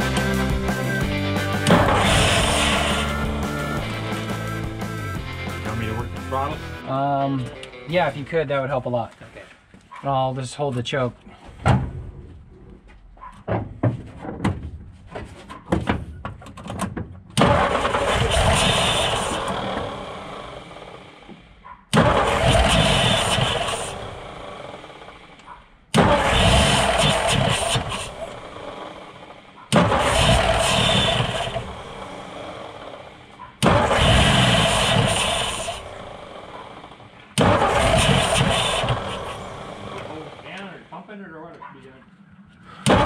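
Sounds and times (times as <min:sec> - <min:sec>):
engine cranked by starter: 0:00.0 - 0:08.4, 0:16.8 - 0:41.2, 0:42.7 - 0:43.0.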